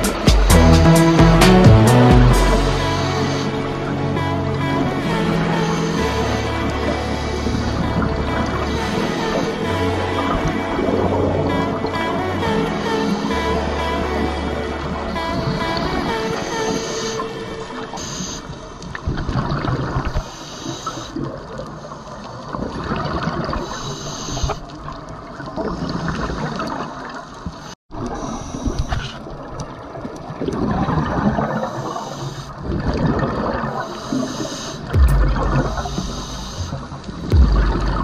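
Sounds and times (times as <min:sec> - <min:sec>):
exhaled bubbles underwater: 0:29.3 - 0:38.0
regulator hiss: 0:33.9 - 0:38.0.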